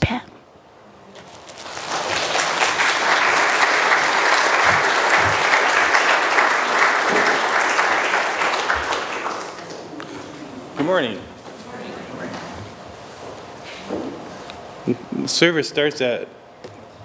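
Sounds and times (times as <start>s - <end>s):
audience applauding: 1.5s - 10.4s.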